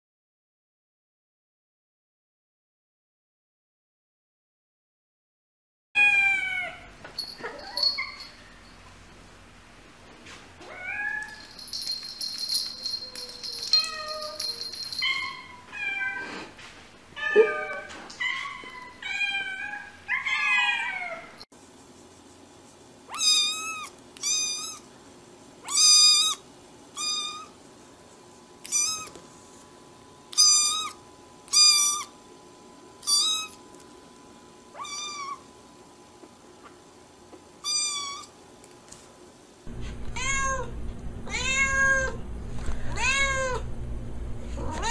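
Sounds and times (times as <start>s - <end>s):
cats meowing: 12.8s - 16.4s, 17.2s - 21.4s, 23.1s - 24.9s, 28.6s - 29.2s, 39.9s - 40.7s, 41.3s - 42.2s, 42.9s - 43.6s, 44.6s - 44.9s.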